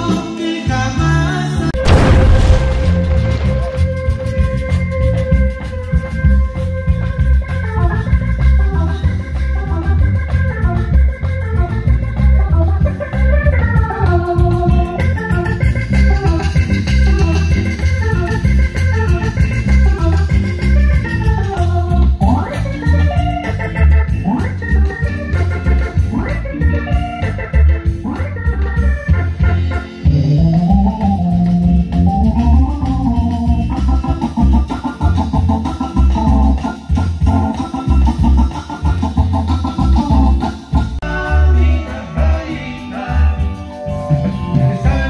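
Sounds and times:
organ keyboard melody: 22.6s - 45.0s.

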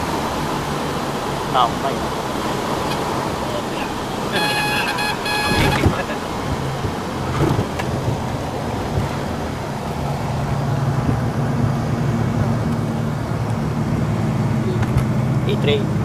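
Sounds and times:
aircraft engines and propellers: 0.0s - 16.0s
high pulsed beeping tone: 4.3s - 5.8s.

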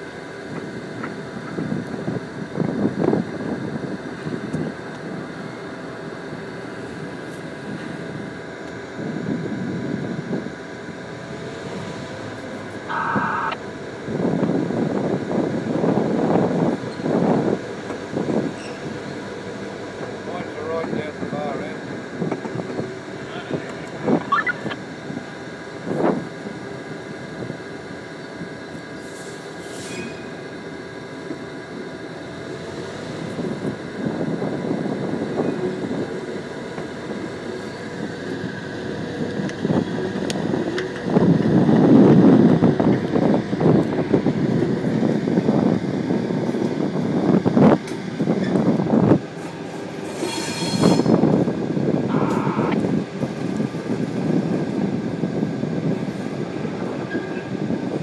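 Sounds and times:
locomotive engine running: 0.0s - 50.3s, 51.0s - 58.0s
wheels rumbling on rails: 0.0s - 58.0s
multi-pitch tone: 12.8s - 13.6s, 52.1s - 52.8s.

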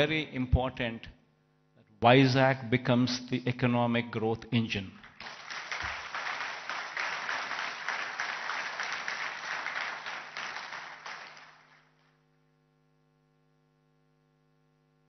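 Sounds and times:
faint electrical hum: 0.0s - 15.0s
audience applauding: 5.0s - 11.9s.

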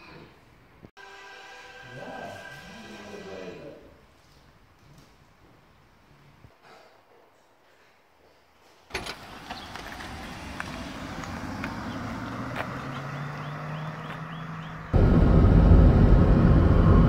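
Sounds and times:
tyre and road noise: 8.9s - 17.0s
birds chirping: 9.2s - 15.0s.

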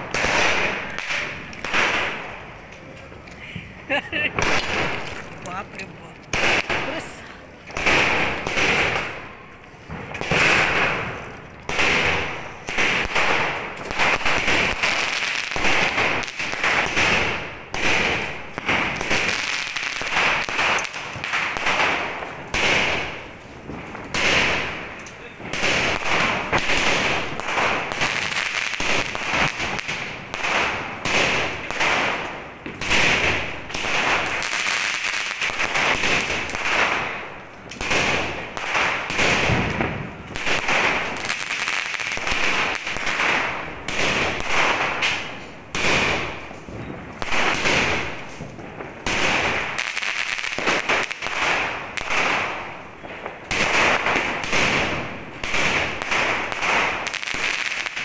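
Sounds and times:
firework shots: 0.0s - 58.0s.

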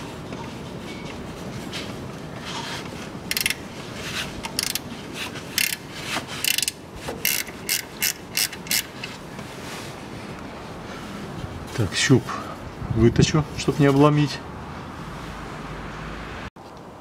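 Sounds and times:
ratchet clicking: 3.3s - 3.6s, 4.5s - 4.8s, 5.5s - 9.1s.

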